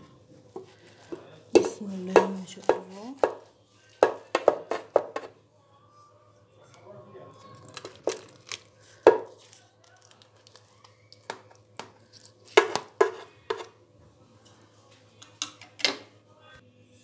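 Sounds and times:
knife tapping metal baking tray: 1.6 - 3.4, 4.0 - 5.3, 12.6 - 13.7.

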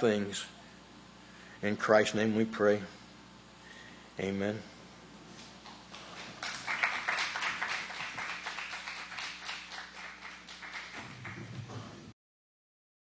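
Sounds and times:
faint low hum: 0.0 - 12.1
congregation clapping: 5.9 - 11.8.

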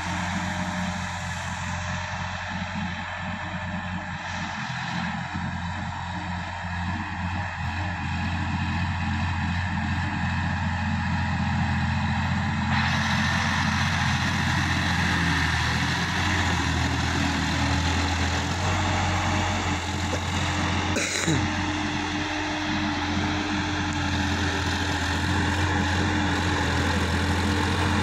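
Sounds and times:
diesel tractor engine under load: 0.0 - 28.0
rotary tiller churning soil: 8.8 - 28.0.

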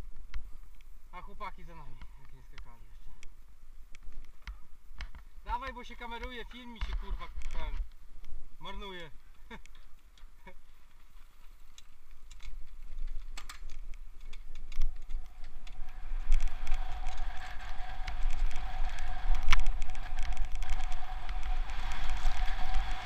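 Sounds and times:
wind rumbling on microphone: 0.0 - 23.0
bike wheels whirring: 9.2 - 23.0
bike rattles and clicks: 9.3 - 23.0.

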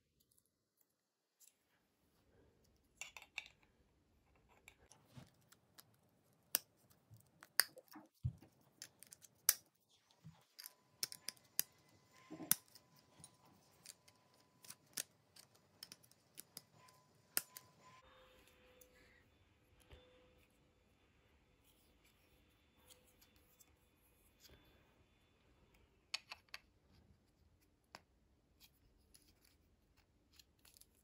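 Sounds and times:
plastic pieces clicking and snapping: 4.5 - 9.7, 10.4 - 17.8.

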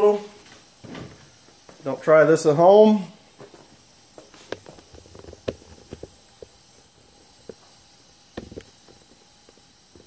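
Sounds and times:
handling knocks and clicks: 4.4 - 6.6.

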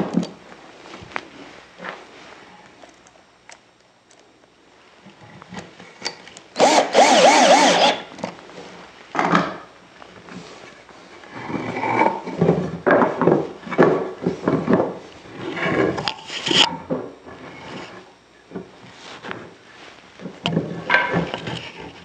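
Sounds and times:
cordless drill driving screw: 6.6 - 8.1.

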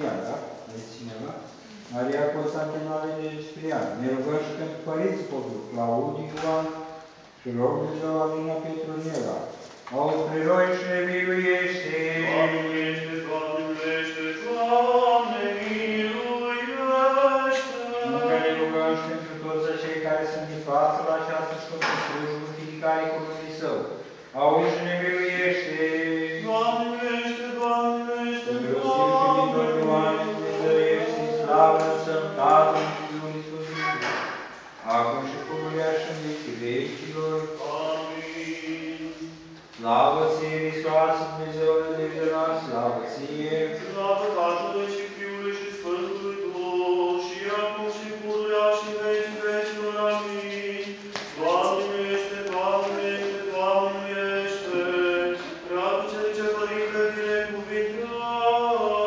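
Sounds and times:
liturgical chant with held notes: 0.0 - 59.0
men chanting: 10.2 - 22.8, 24.4 - 34.2.

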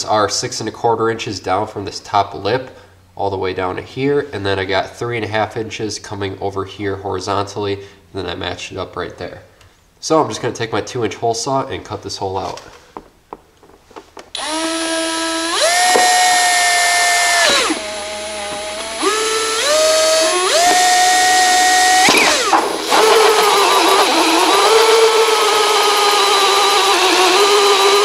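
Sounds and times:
cordless drill motor whine: 14.3 - 28.0
hole saw cutting door panel: 14.3 - 28.0.

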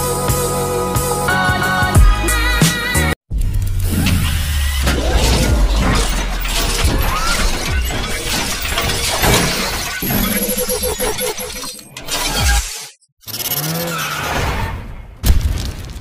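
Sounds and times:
music: 0.0 - 3.2
whooshes: 3.4 - 9.1
shattering crackling impacts: 14.4 - 16.0.

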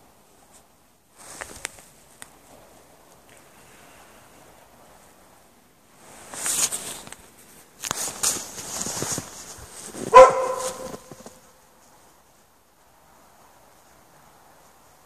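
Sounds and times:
dog barking: 10.1 - 11.4.

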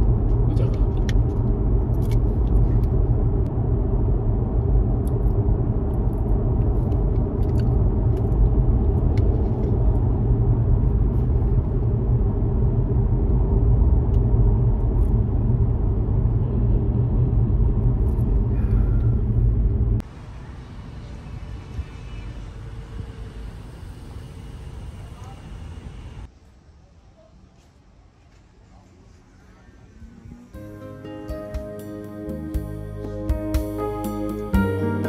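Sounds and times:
road and engine rumble in car: 0.0 - 26.3.

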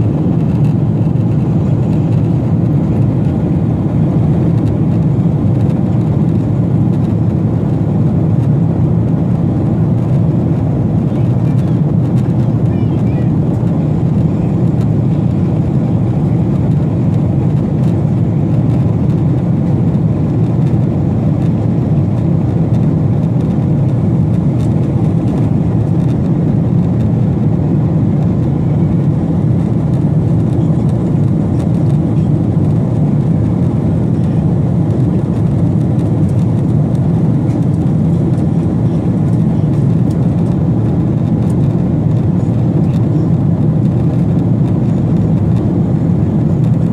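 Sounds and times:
jet airliner cabin rumble: 0.0 - 46.9.

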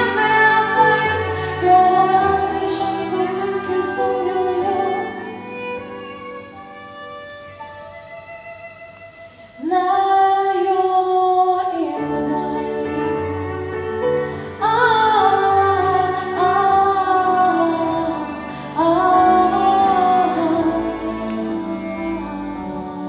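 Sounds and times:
instrumental accompaniment: 0.0 - 10.7, 11.8 - 23.0
woman singing long notes: 14.5 - 23.0.

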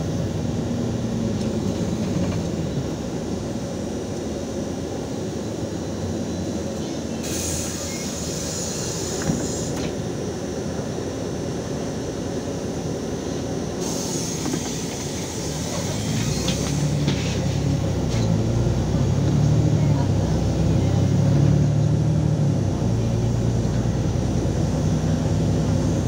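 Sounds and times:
bus engine and road rumble: 0.0 - 26.0
compressed air hiss: 6.8 - 9.8, 13.8 - 17.6.

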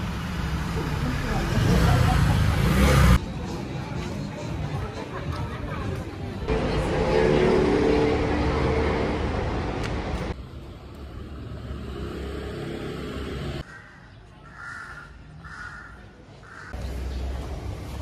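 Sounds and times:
street traffic rumble: 0.0 - 18.0
crow cawing: 13.6 - 16.8.

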